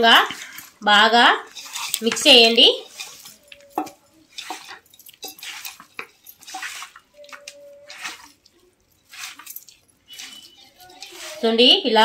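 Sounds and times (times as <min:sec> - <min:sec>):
hand squelching raw chicken: 0:01.4 - 0:11.5.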